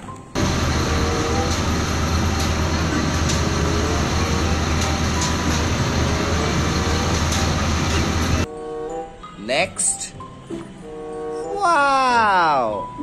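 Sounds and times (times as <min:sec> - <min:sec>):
truck diesel engines rumbling: 0:00.4 - 0:08.5.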